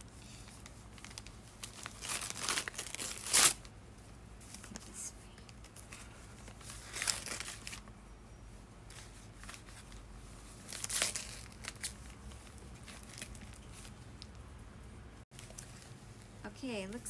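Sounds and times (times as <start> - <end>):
paper crumpling and tearing: 0.4 - 3.7, 5.8 - 7.8, 10.6 - 14.0.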